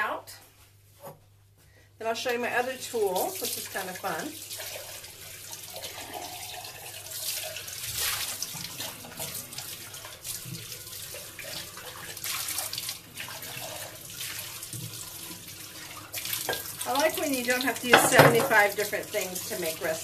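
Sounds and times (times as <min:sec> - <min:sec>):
tap running into sink: 0:16.2 - 0:16.8, 0:17.8 - 0:18.9.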